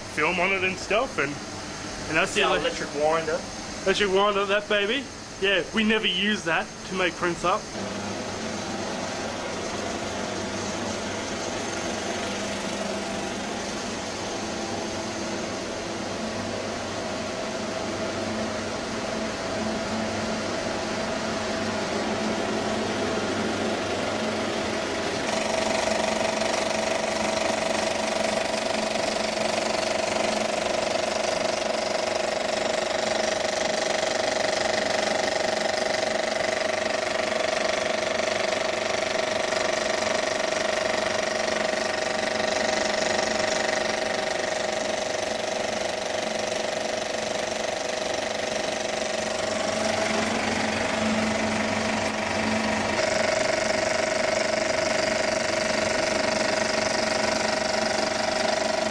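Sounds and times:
film projector machinery humming: 0.0s - 58.9s.

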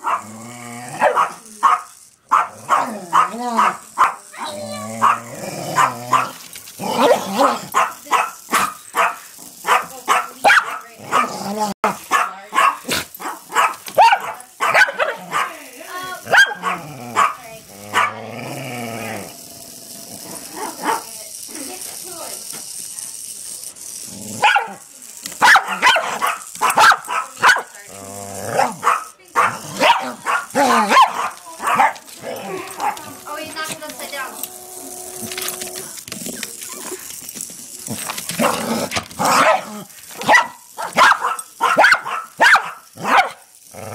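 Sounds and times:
dog barking: 0.0s - 0.3s, 1.0s - 6.4s, 7.0s - 15.6s, 16.3s - 18.2s, 20.6s - 21.1s, 24.4s - 24.8s, 25.4s - 27.8s, 28.6s - 32.0s, 32.8s - 33.1s, 39.3s - 43.4s
dog growling low: 0.0s - 1.6s, 4.3s - 7.8s, 10.9s - 11.8s, 16.6s - 21.1s, 24.0s - 24.4s, 27.8s - 28.8s, 29.5s - 37.2s, 37.8s - 40.2s, 43.6s - 43.9s.

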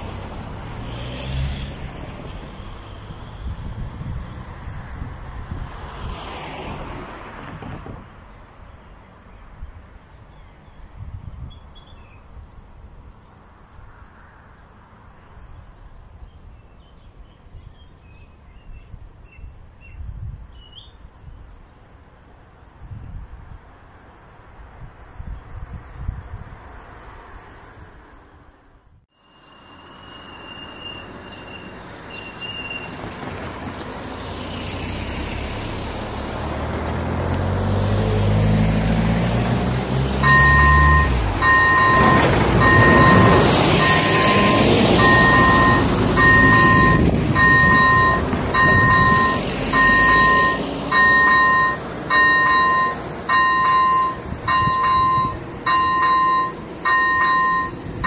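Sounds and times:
dump truck diesel engine passing: 0.0s - 8.3s, 26.8s - 58.0s
two-tone crossing warning bell: 40.2s - 57.8s.

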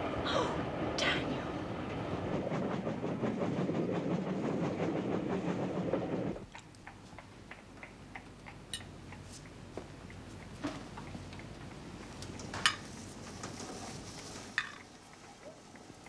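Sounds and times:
train rumbling on rails: 0.0s - 6.5s.

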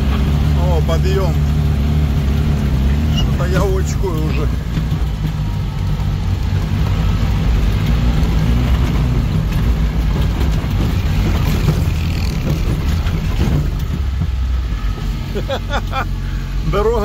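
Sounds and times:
off-road vehicle engine under load: 0.0s - 17.0s
body knocks and rattles: 3.2s - 15.0s.

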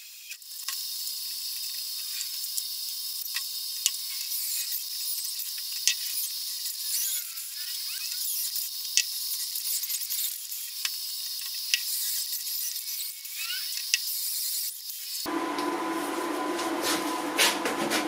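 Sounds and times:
drill boring through steel: 0.0s - 15.3s.

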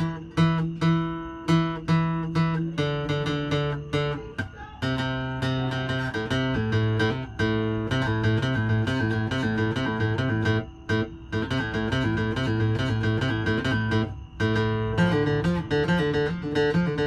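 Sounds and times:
guitar picking: 0.0s - 17.0s.

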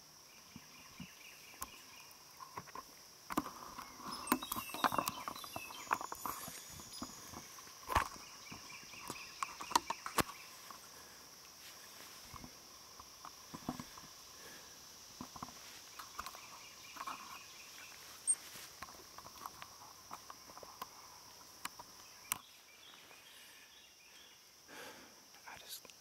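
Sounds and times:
steady high-pitched insect drone: 0.0s - 26.0s.

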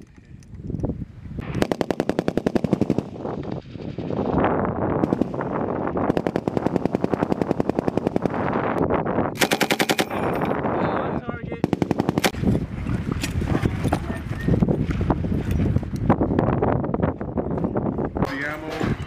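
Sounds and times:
machine gun automatic fire: 1.4s - 3.2s, 5.0s - 5.5s, 6.1s - 8.6s, 9.4s - 10.4s, 11.6s - 12.4s.

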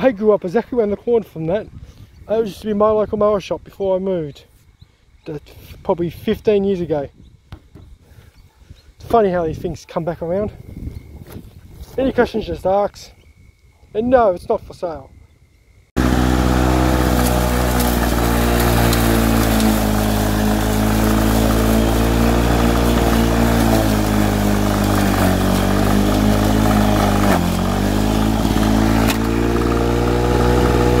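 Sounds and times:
lawnmower engine running: 16.0s - 31.0s.

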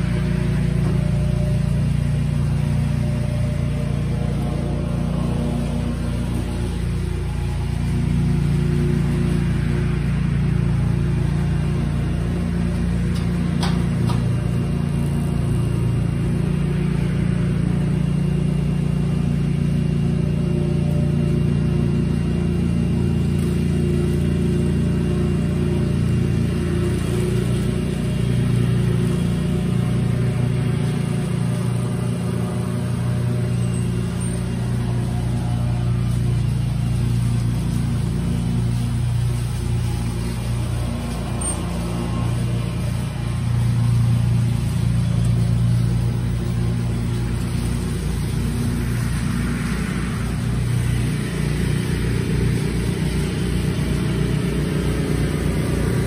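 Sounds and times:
vehicle engine idling: 0.0s - 56.0s.

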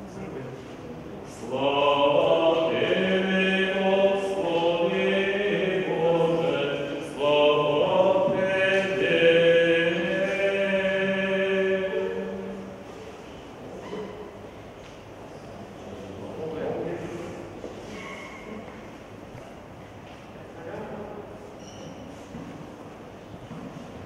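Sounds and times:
liturgical chant with held notes: 1.2s - 13.5s.

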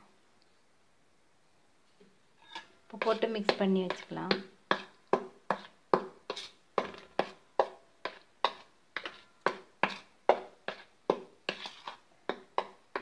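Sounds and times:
spoon scraping metal plate: 2.4s - 4.1s, 6.3s - 7.3s, 8.0s - 10.1s, 11.5s - 12.0s.

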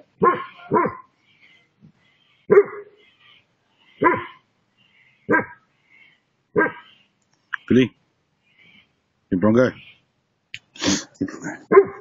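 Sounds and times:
dog barking: 0.2s - 1.1s, 2.5s - 3.0s, 4.0s - 4.4s, 5.3s - 5.6s, 6.6s - 7.0s, 11.7s - 12.0s.

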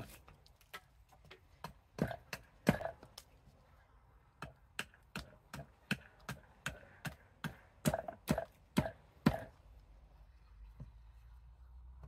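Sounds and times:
axe chopping wood: 0.0s - 3.2s, 4.4s - 9.6s.

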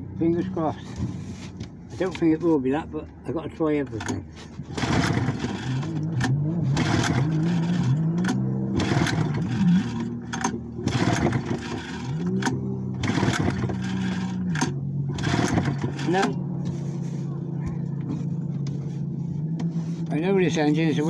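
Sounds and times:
outboard motor pull-start whir: 4.0s - 16.4s.

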